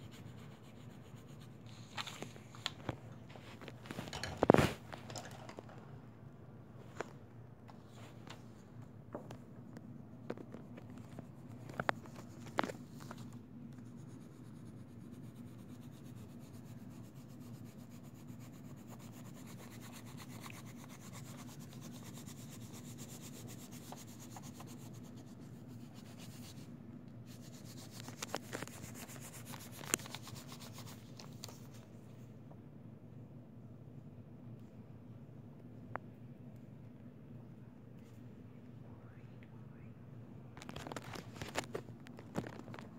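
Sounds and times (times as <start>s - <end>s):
pencil scratching on paper: 0.0s - 1.8s, 13.8s - 26.7s, 27.3s - 31.2s.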